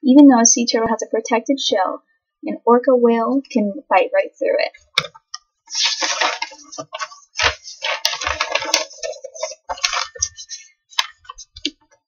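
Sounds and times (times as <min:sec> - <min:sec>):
paper rustling and crackling: 0:05.7 - 0:11.7.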